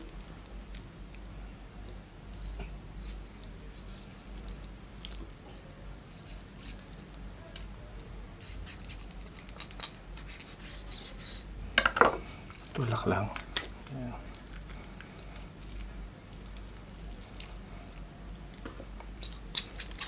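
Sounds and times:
low steady hum: 0.0 - 20.0
wet squishing: 3.0 - 5.4, 12.3 - 20.0
knife cutting raw chicken: 8.4 - 11.4.

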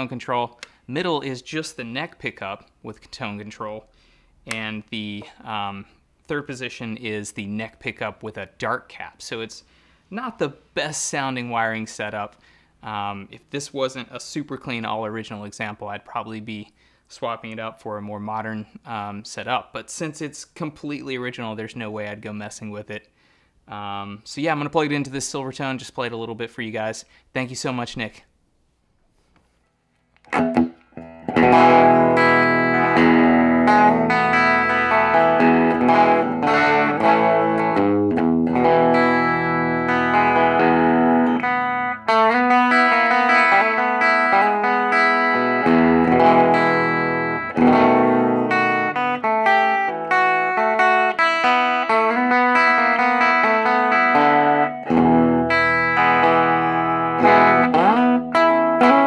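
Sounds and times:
electric guitar playing: 30.2 - 59.0.

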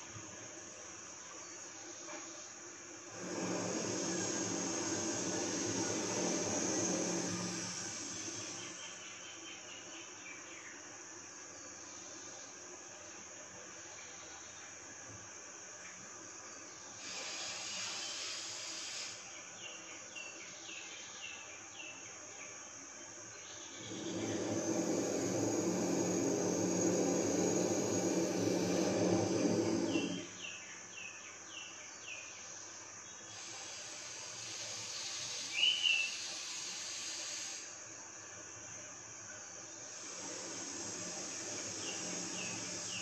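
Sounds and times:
insects trilling: 0.0 - 43.0
slow breath through nose: 17.0 - 19.3, 33.4 - 37.8
bird chirping: 35.4 - 36.3.

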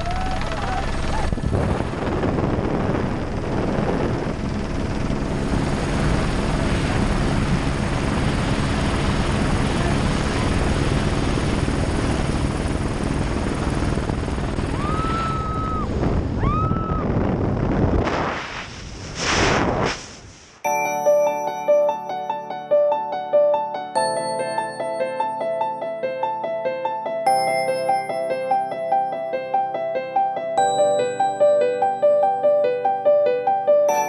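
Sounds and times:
high-pitched whoops: 0.0 - 0.8, 14.7 - 17.2
wind noise: 0.0 - 20.5
helicopter engine and rotor: 0.1 - 15.0.

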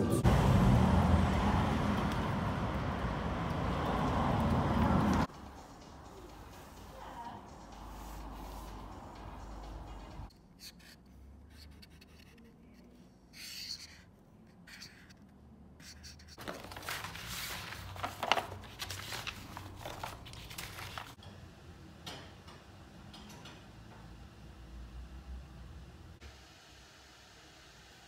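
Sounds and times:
paper sheets rustling: 16.4 - 21.2.

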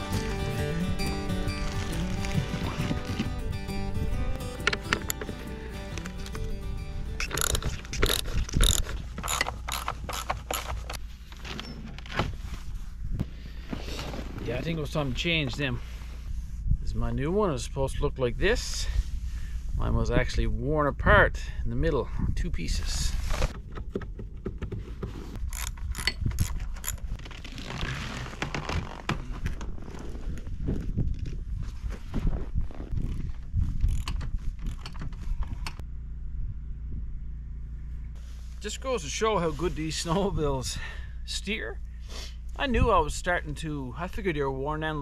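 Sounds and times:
ratchet wrench clicking: 7.2 - 11.0, 25.5 - 27.0.

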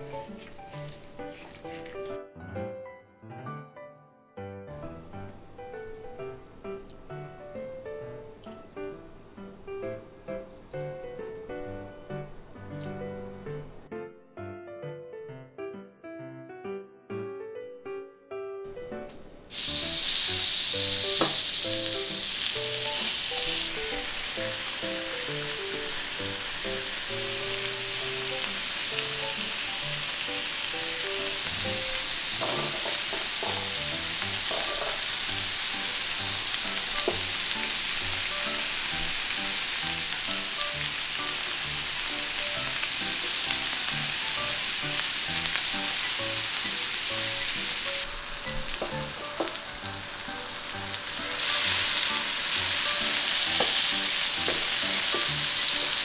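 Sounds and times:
meat sizzling on grill: 0.0 - 2.2, 19.5 - 56.0.

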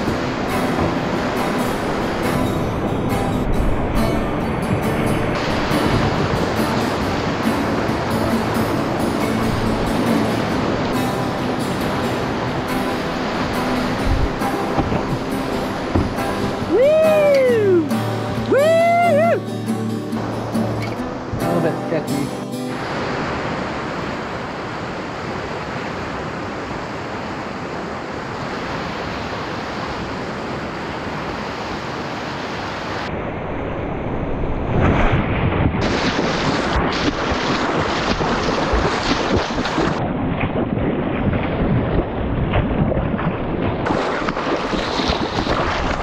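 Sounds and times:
whitewater rapids rushing: 0.0 - 33.1, 35.8 - 40.1, 42.8 - 46.0
water splashing over camera: 34.8 - 46.0.

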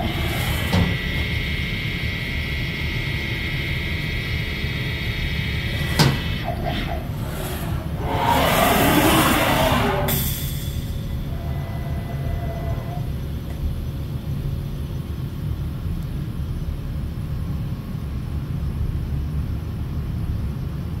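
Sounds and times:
faint servo whine: 5.3 - 13.4.

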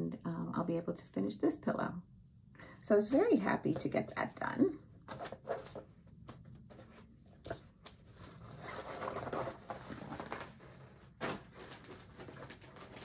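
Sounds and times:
vinyl bag rustling and crinkling: 5.1 - 5.9, 6.6 - 13.0.

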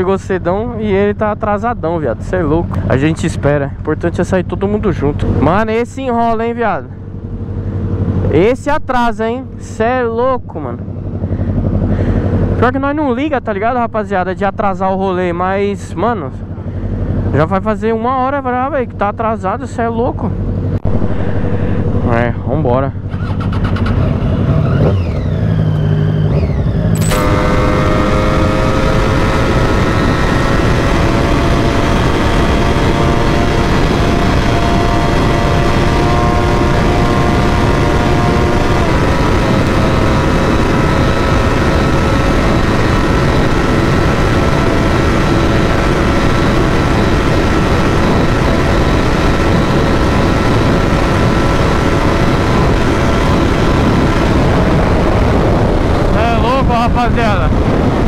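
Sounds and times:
motorcycle engine: 0.0 - 8.6, 9.2 - 12.9, 15.2 - 58.0
wind noise on microphone: 26.8 - 58.0.

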